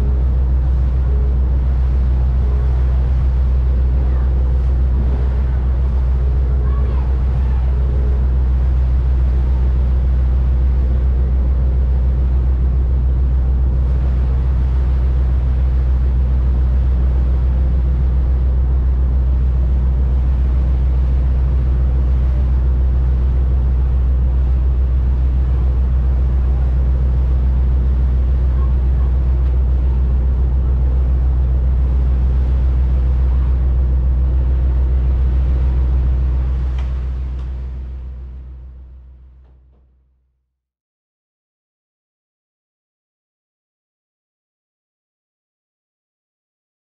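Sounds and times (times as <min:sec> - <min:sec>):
wind and water hiss: 0:00.0 - 0:38.5
boat engine droning: 0:00.0 - 0:39.9.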